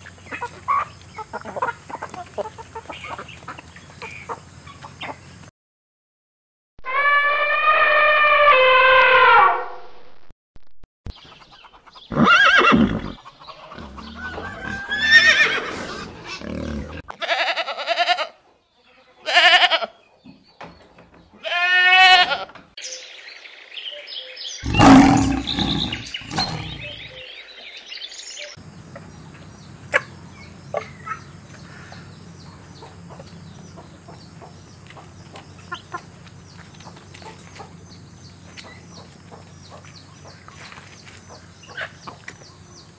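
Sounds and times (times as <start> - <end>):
loud animal calls: 6.8 - 9.8, 24.6 - 27.1
elephant trumpeting: 6.9 - 9.6, 24.6 - 27.0.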